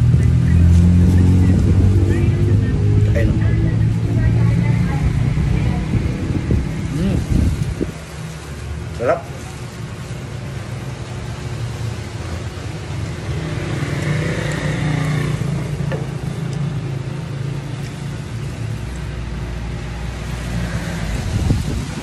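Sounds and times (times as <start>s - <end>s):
low engine rumble: 0.0s - 13.4s.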